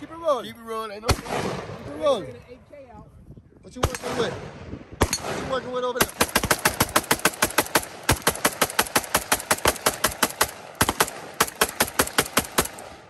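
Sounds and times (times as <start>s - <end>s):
rapid rifle shots: 1.1s - 1.8s, 3.8s - 13.0s.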